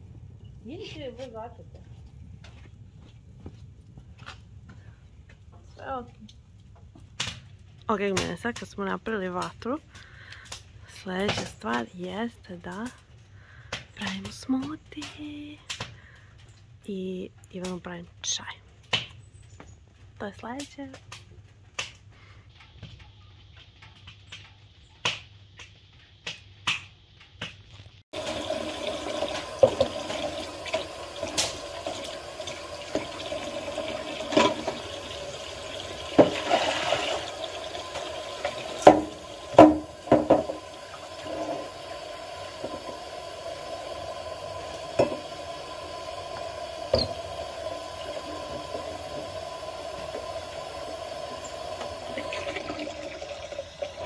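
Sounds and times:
pot clanking: 28.2 - 41.8
sponge scrubbing pot: 28.2 - 54.0
tap running into sink: 28.2 - 54.0.

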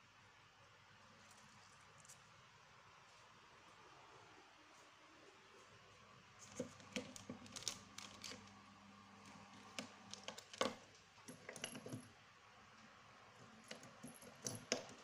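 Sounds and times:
pens clicking in a pen pot: 6.5 - 8.5, 9.6 - 12.1, 13.6 - 15.0.

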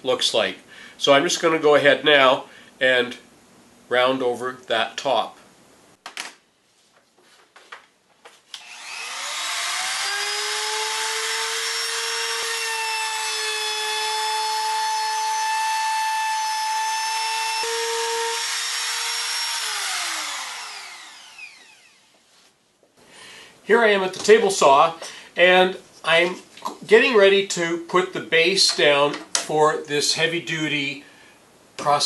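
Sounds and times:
router whining: 8.6 - 22.2.

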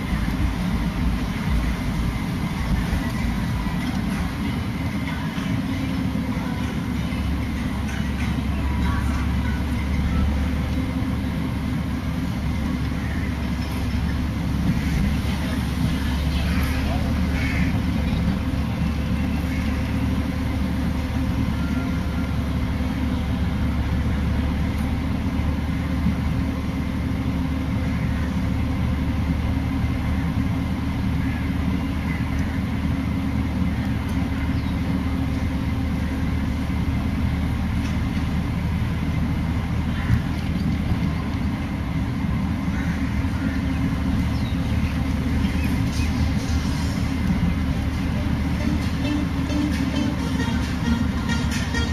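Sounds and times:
road noise: 0.0 - 51.9
vehicle engine droning: 0.0 - 51.9.

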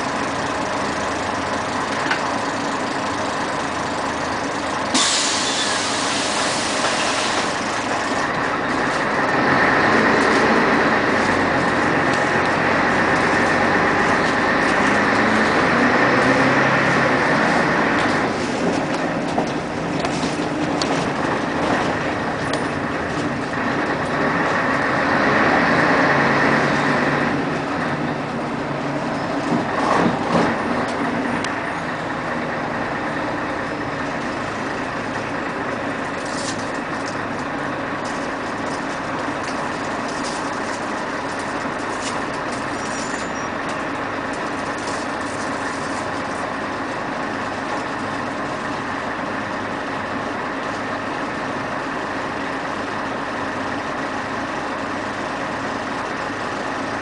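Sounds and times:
bus diesel engine droning: 0.0 - 57.0.

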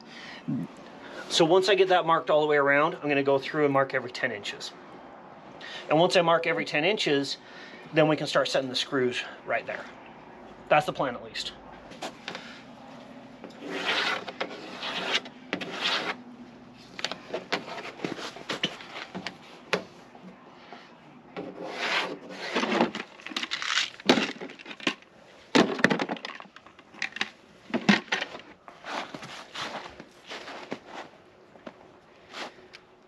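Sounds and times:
pencil scratching along ruler: 13.6 - 16.2, 21.5 - 22.8.

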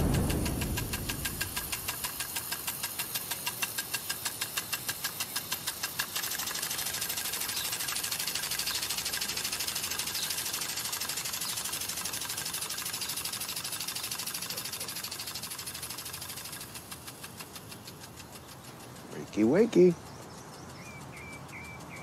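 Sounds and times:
impact sprinkler ticking: 0.0 - 22.0
sprinkler spray hissing: 0.0 - 22.0.

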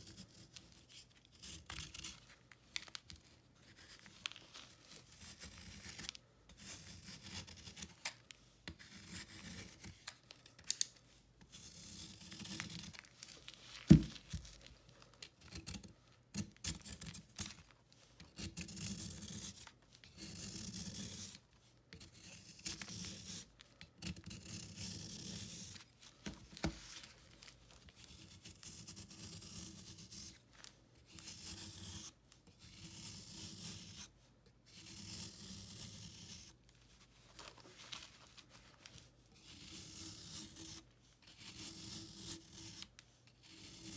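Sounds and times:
knife scraping chalky block: 0.0 - 2.3, 3.6 - 10.0, 11.4 - 13.0, 18.2 - 25.8, 28.0 - 30.4, 31.1 - 34.1, 34.7 - 36.5, 39.4 - 43.9.

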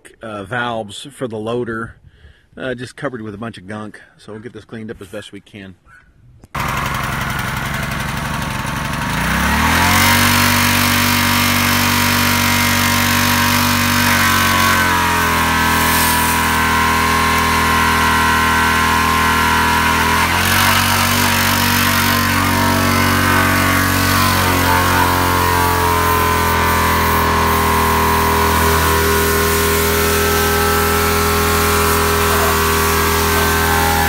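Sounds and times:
pressure washer engine running: 6.6 - 34.0
water spray hissing: 9.8 - 18.3, 20.4 - 34.0.

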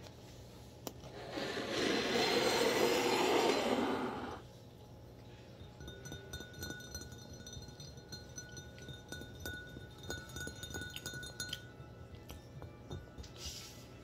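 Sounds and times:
fingernails tapping a glass: 5.6 - 11.7.

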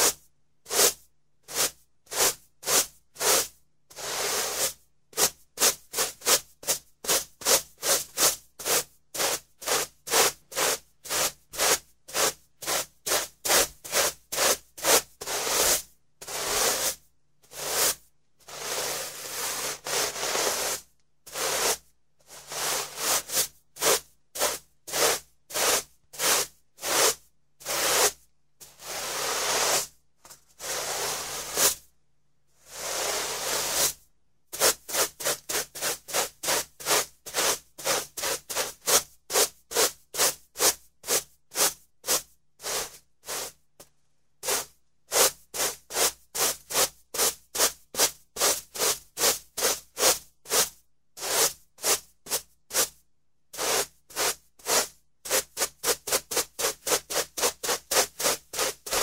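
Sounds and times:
broom sweeping carpet: 0.0 - 31.9, 32.6 - 43.6, 44.4 - 59.0.

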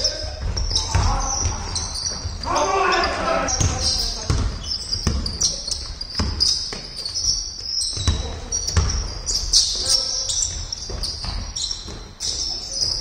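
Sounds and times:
players shouting: 0.0 - 4.3
shoe squeaks: 0.0 - 13.0
basketball bouncing on wooden floor: 0.4 - 2.4, 3.5 - 13.0.

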